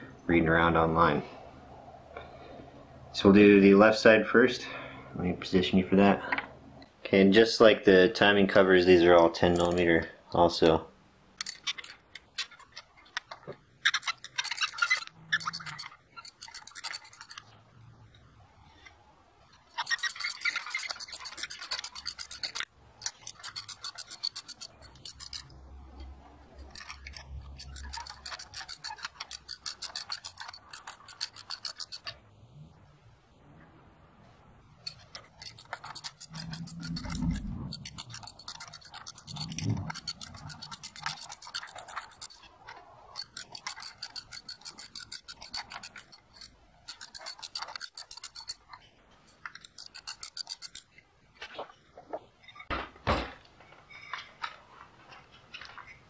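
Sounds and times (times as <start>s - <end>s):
socket ratchet clicking: 11.4s - 12.5s, 13.8s - 17.5s, 19.8s - 25.6s, 26.5s - 32.2s, 34.8s - 42.5s, 43.2s - 50.9s.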